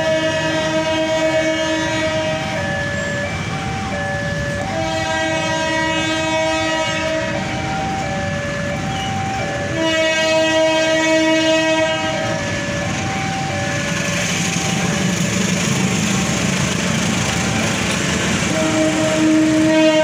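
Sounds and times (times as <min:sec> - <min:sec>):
train horn blasts: 0:00.0 - 0:02.6, 0:04.6 - 0:07.6, 0:09.6 - 0:12.5, 0:18.3 - 0:20.0
level crossing alarm: 0:00.0 - 0:20.0.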